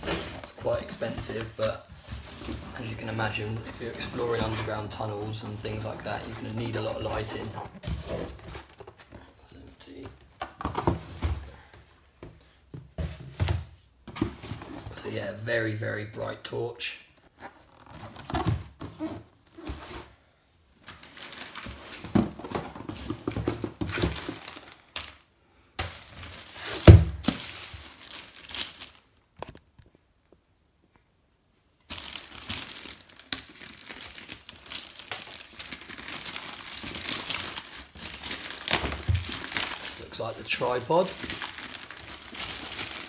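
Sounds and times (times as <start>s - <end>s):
plastic bag crinkling and tearing: 0.0s - 8.9s, 25.9s - 29.6s, 31.9s - 43.0s.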